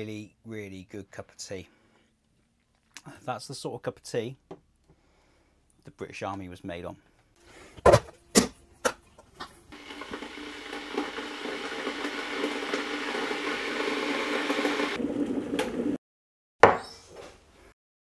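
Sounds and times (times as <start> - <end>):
electric kettle heating water: 9.4 - 16.0.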